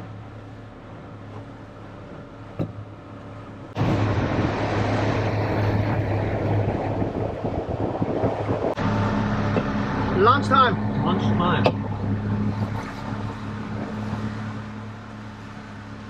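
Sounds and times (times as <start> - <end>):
boat motor humming: 0.0 - 16.0
wind and water rushing: 0.0 - 16.0.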